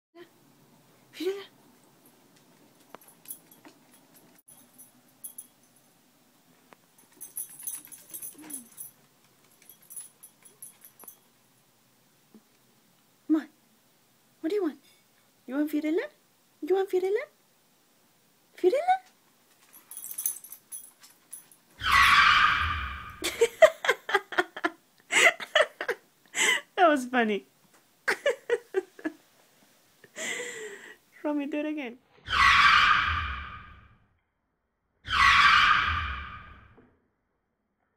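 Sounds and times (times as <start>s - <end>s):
dog tag jingling: 3.0s - 5.8s, 7.0s - 11.2s, 19.6s - 21.6s.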